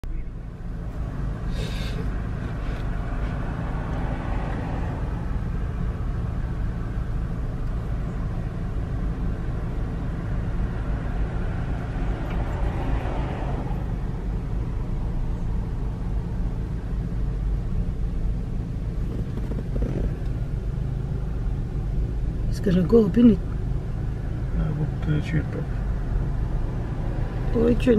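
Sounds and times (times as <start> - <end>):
car engine idling: 0.0 - 27.9.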